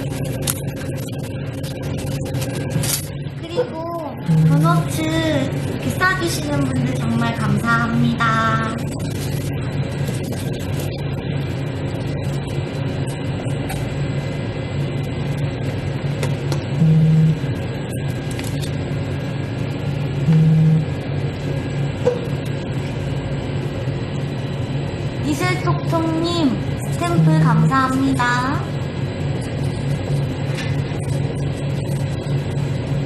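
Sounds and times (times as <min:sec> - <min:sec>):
low machine hum: 0:00.0 - 0:33.0
short low buzzes: 0:04.2 - 0:04.9, 0:20.2 - 0:21.0.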